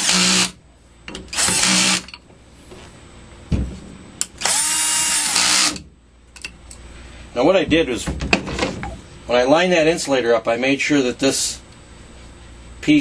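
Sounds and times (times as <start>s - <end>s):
cordless drill spinning: 0.0s - 0.5s, 1.3s - 2.1s, 4.4s - 5.8s.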